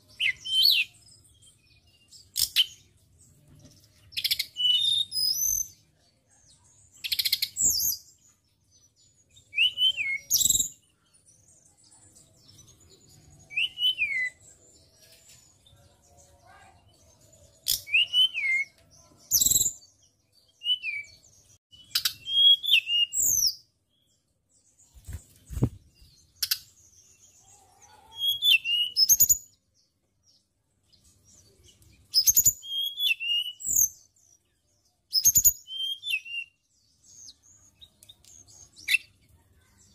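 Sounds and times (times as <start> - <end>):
bird singing high whistled notes: 0.1 - 1.1, 4.2 - 5.8, 9.3 - 10.8, 13.2 - 14.6, 17.6 - 23.7, 28.1 - 29.6, 32.1 - 34.3, 35.1 - 38.0.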